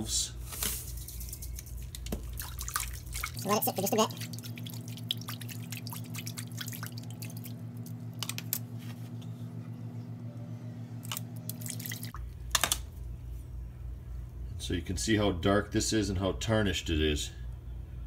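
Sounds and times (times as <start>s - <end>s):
steady low hum: 0.0s - 18.0s
water splashes and drips: 1.6s - 8.6s, 11.1s - 12.2s
water swished by hand in sink: 1.6s - 8.6s.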